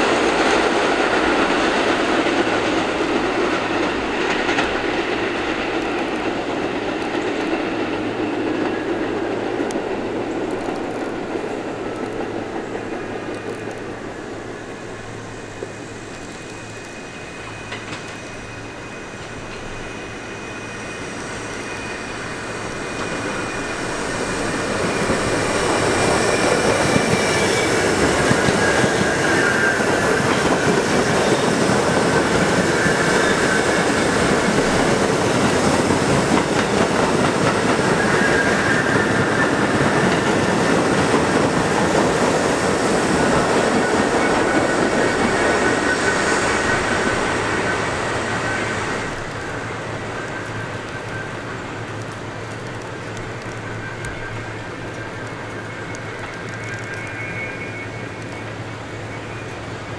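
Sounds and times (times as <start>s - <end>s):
clickety-clack of wheels: 0.0s - 13.9s, 17.5s - 18.4s, 22.6s - 57.4s
subway wheels rumbling on track: 0.0s - 59.9s
high wheel squeal: 14.8s - 51.8s, 53.6s - 59.8s.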